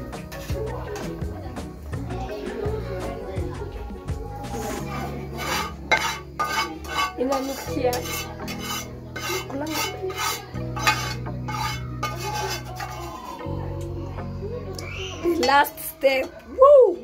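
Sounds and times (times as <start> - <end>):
metal spoon scraping metal pot: 5.3 - 13.5.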